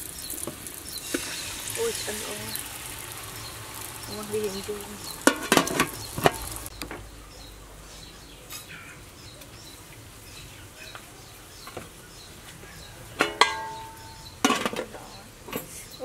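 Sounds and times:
faint bird chirps: 0.0 - 16.0
metal lid clattering on pot: 5.3 - 6.4, 13.2 - 14.9.

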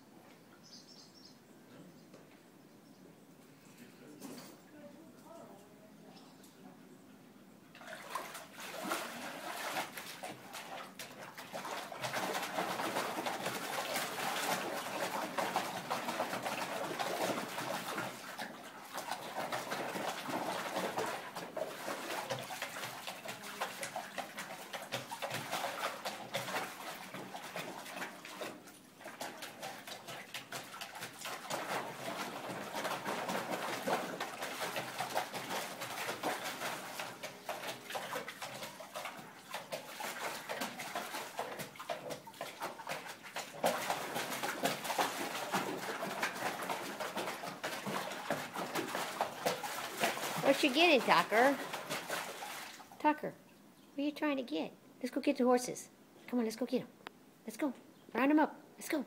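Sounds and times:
water splashing and sloshing: 7.7 - 53.7
dog digging in water trough: 7.8 - 53.0.

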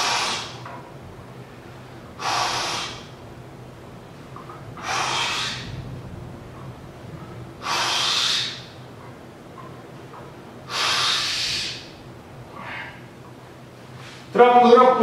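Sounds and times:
man breathing forcefully: 0.0 - 0.6, 2.0 - 3.1, 4.8 - 5.8, 7.6 - 8.8, 10.6 - 13.1.

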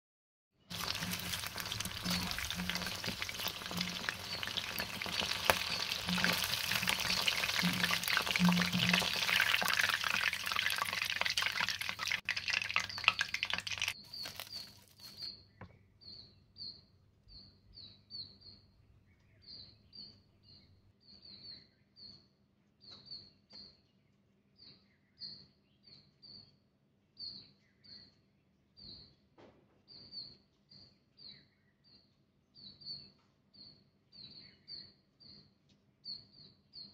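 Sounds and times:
chicken deep-frying in oil: 0.7 - 15.7
bird chirping: 0.7 - 22.2.

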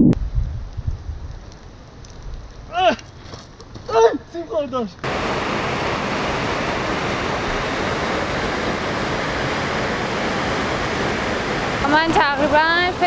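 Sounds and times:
mountain stream rushing: 5.0 - 13.0.

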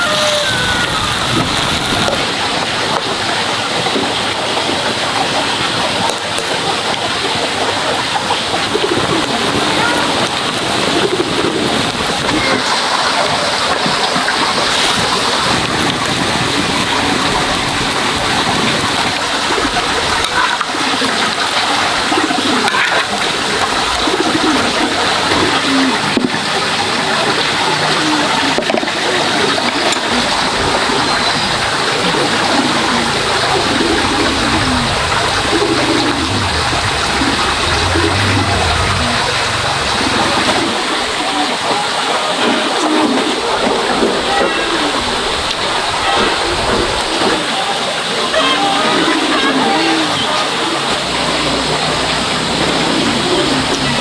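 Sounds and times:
water rushing: 0.0 - 54.0
faint warbling tones: 29.4 - 41.9.

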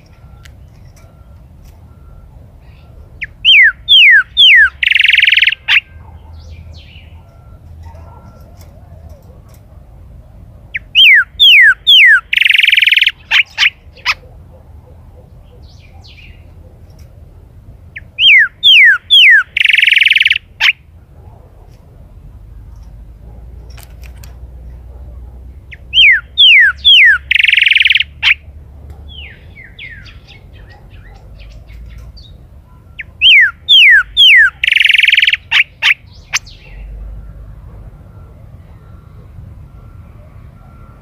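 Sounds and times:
bird singing whistles and buzzy notes: 3.2 - 7.1, 10.8 - 13.8, 18.0 - 20.4, 25.7 - 28.4, 33.0 - 36.6.

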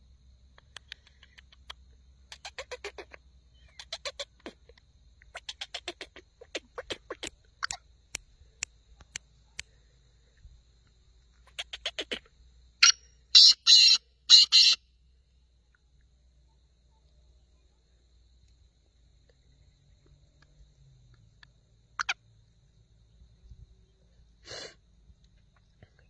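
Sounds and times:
bird clicking calls: 0.6 - 9.7, 11.4 - 13.0, 21.4 - 22.2.

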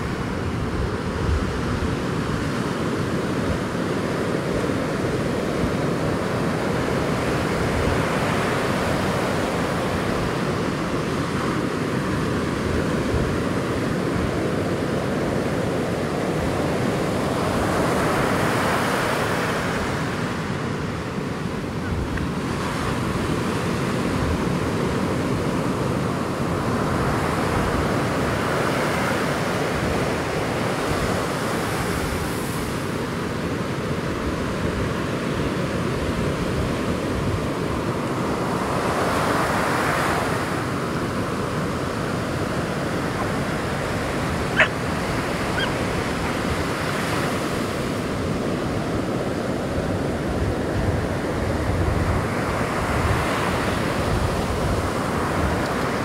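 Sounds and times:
ocean surf washing in: 0.0 - 56.0
wind rumble on microphone: 0.0 - 56.0
waves breaking: 37.6 - 56.0.

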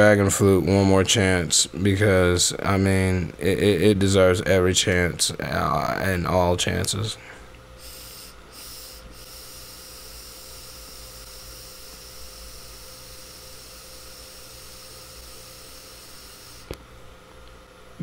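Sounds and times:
faint constant hum: 0.0 - 18.0
vape inhale hiss: 7.8 - 14.9.

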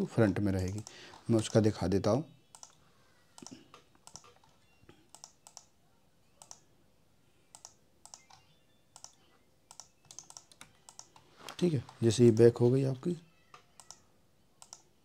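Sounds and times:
computer mouse clicking: 0.6 - 1.6, 2.5 - 2.8, 3.4 - 5.7, 6.4 - 6.6, 7.5 - 8.4, 9.0 - 12.0, 13.5 - 14.0, 14.6 - 14.9.

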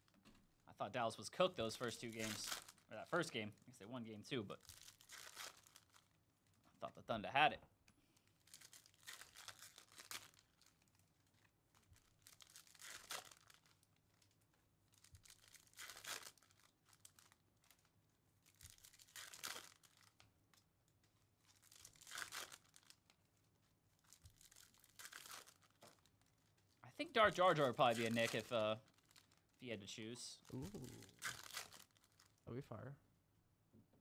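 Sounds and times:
card pack wrappers tearing: 1.8 - 3.4, 4.6 - 6.1, 8.4 - 10.8, 11.8 - 14.3, 15.0 - 20.2, 21.5 - 23.1, 24.1 - 26.5, 27.2 - 29.4, 30.7 - 32.3.

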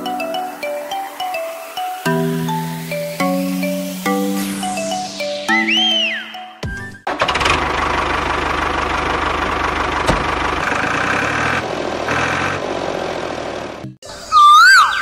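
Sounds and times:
tractor engine chugging: 7.1 - 14.0.

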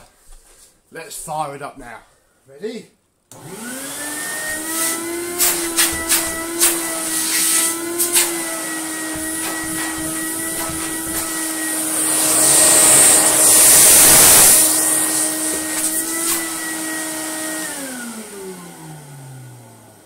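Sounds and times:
vacuum motor whine: 3.3 - 20.0
vacuum motor winding down: 3.3 - 20.0
air rushing into vacuum hose: 4.4 - 18.0.

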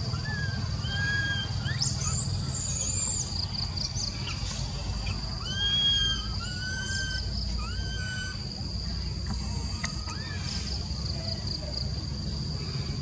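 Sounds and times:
baby monkey whistling cries: 0.0 - 3.3, 5.0 - 8.5, 9.5 - 10.8.

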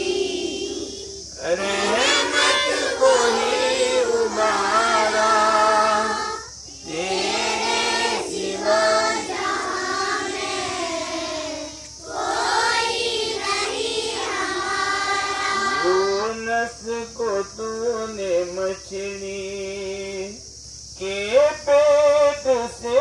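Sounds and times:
children singing in unison: 0.0 - 16.4.

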